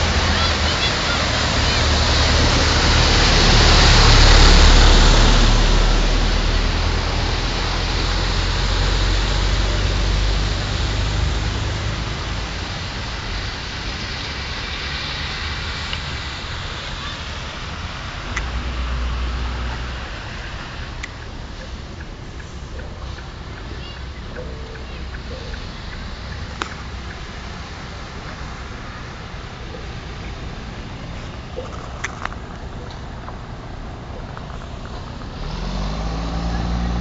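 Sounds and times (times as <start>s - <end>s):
rush of churned water: 0.0s - 37.0s
vehicle engine rumble: 0.0s - 37.0s.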